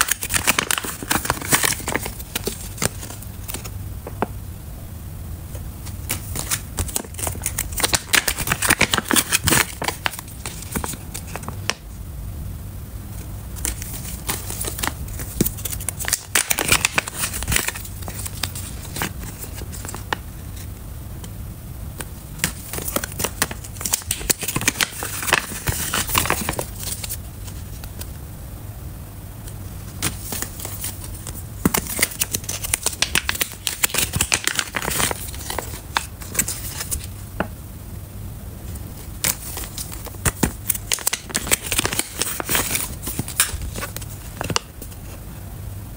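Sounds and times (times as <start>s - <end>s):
foil pouches crinkling: 0.0s - 3.7s, 6.0s - 11.8s, 13.6s - 20.7s, 22.4s - 27.9s, 30.0s - 37.1s, 39.0s - 45.0s.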